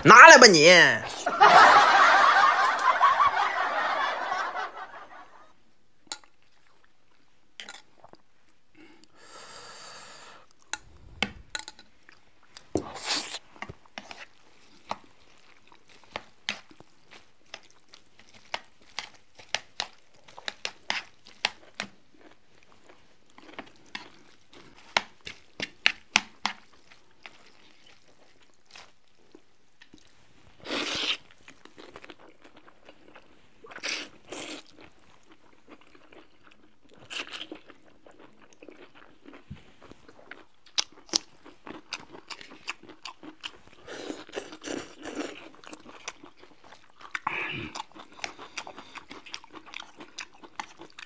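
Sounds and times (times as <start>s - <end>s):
lip smacks and chewing: 12.0s - 30.1s, 30.9s - 51.0s.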